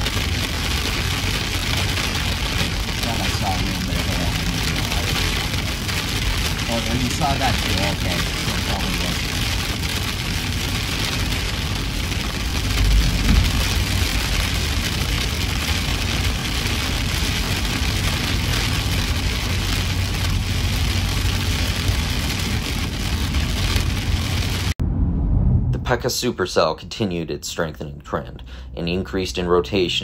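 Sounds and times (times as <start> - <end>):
heavy rain on a car: 0.0 - 24.8
tyre and road noise: 0.0 - 25.8
deep rumble: 0.0 - 27.0
wind against a car: 9.8 - 15.6, 16.5 - 26.0.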